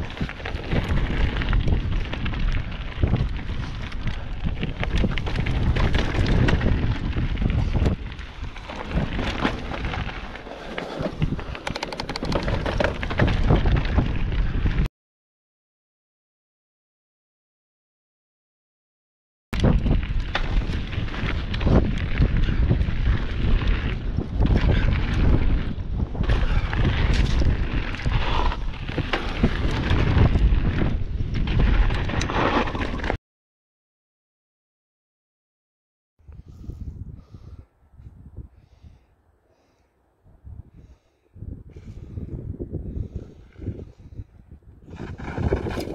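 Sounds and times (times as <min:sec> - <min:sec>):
bike tyres crunching over stones: 0:00.0 - 0:14.8, 0:19.6 - 0:33.2, 0:44.9 - 0:45.9
bike rattling and clattering: 0:00.0 - 0:14.9, 0:19.6 - 0:33.2, 0:44.8 - 0:45.9
wind rumbling on microphone: 0:00.0 - 0:14.9, 0:19.6 - 0:33.2, 0:36.2 - 0:45.9
sharp clicks and rattles: 0:11.4 - 0:13.3.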